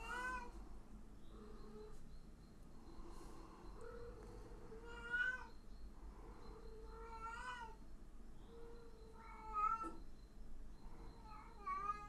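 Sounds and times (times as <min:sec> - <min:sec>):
cat meowing: 0:09.2 - 0:10.0, 0:11.3 - 0:12.0.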